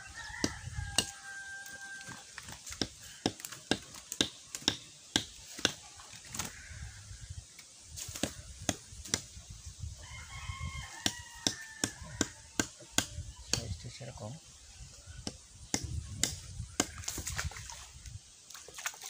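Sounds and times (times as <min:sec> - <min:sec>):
rooster crowing: 0:00.0 - 0:02.3, 0:10.0 - 0:12.6.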